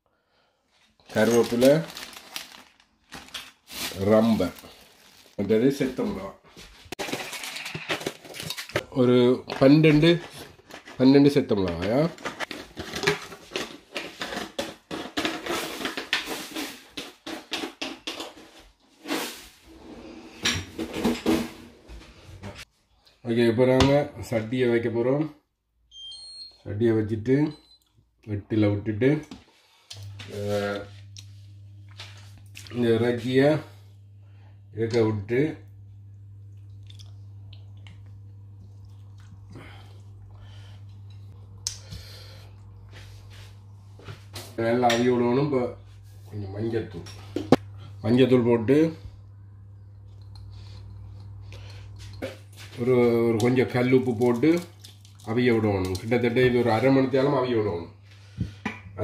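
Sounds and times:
plastic bag crinkling: 1.0s - 6.2s, 7.0s - 8.8s, 53.5s - 56.3s
steady low hum: 26.7s - 59.0s
wet squishing of meat in water: 53.4s - 56.1s.

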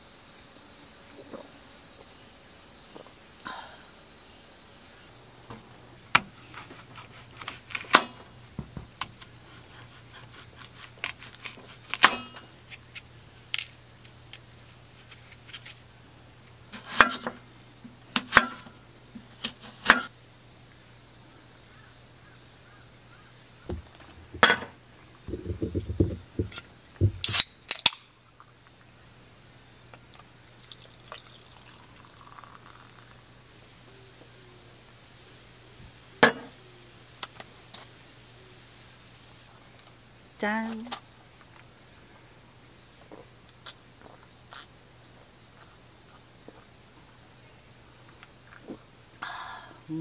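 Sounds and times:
high drone of insects: 0.0s - 50.0s.

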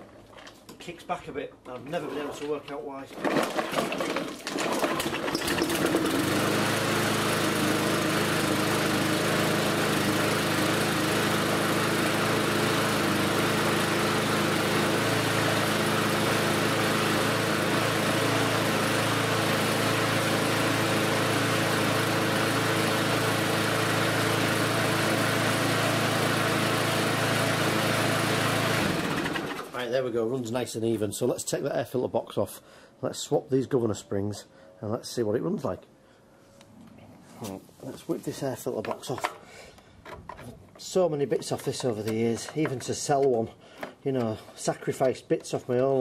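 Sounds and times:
lawnmower engine running: 3.2s - 29.8s.

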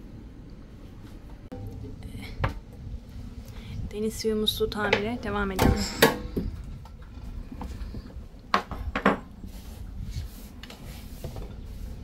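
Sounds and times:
low background rumble: 0.0s - 8.6s.

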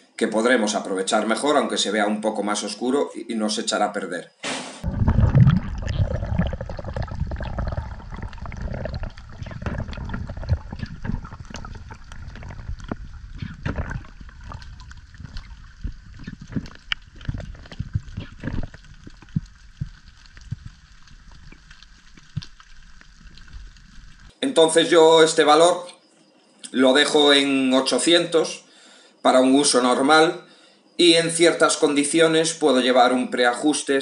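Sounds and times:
underwater rumble of water: 4.8s - 24.3s
underwater crackle of clicks: 5.5s - 24.3s.

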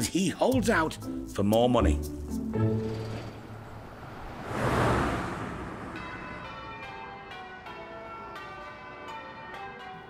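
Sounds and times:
whoosh: 2.8s - 7.2s
church bells ringing: 6.0s - 10.0s.

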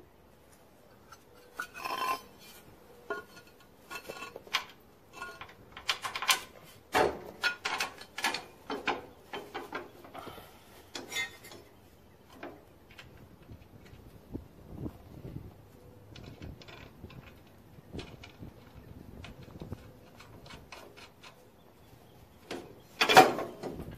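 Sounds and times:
metal hardware clinking: 1.1s - 6.6s.

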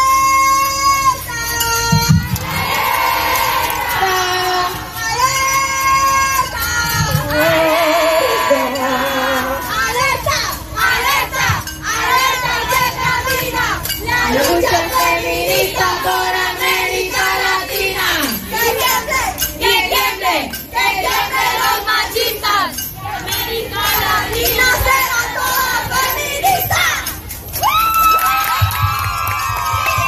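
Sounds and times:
crowd of women cheering and shouting: 0.0s - 30.0s
crowd chanting slogans: 7.2s - 26.8s.

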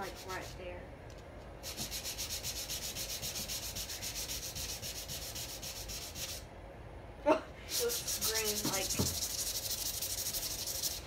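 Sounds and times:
hand sanding wood: 0.0s - 0.6s, 1.6s - 6.5s, 7.7s - 11.0s.

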